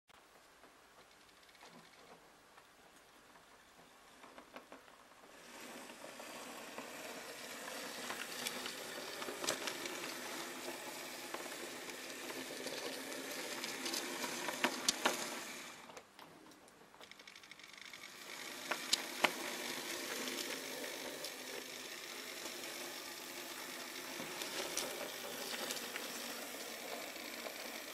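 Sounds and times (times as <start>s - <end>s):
model train motor whirring: 5.2s - 16.1s, 17.0s - 27.9s
sharp clicks: 7.7s - 21.4s.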